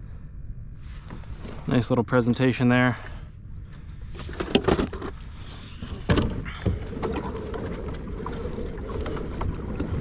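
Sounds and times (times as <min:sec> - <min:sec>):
water and hull noise: 0:03.0 - 0:10.0.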